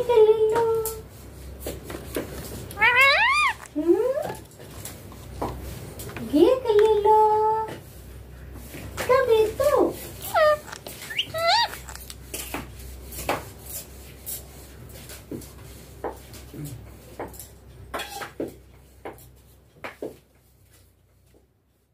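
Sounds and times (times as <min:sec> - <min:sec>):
beak clicking on cage bars: 0:10.2 - 0:12.6
parakeet whistled call: 0:10.3 - 0:12.0.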